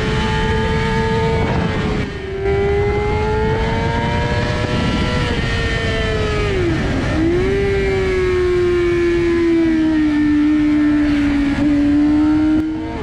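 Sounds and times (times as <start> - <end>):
motorcycle engine at high revs: 0.0 - 13.0
wind rushing over microphone: 0.0 - 13.0.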